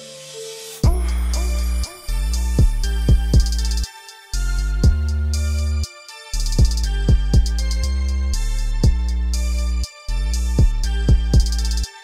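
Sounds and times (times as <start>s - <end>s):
kick drum: 0.8s - 1.0s, 2.6s - 3.6s, 4.8s - 5.1s, 6.6s - 7.7s, 8.8s - 9.1s, 10.6s - 11.6s
music with heavy bass: 0.8s - 12.0s.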